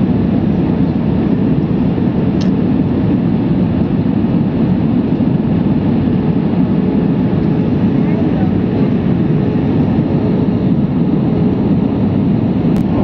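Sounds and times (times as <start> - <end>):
airliner cabin engine noise: 0.0 - 13.0.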